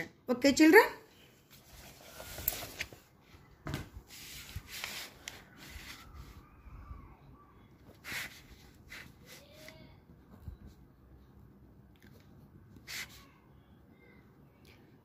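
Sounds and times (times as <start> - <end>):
paper rustling: 1.5 - 6.4.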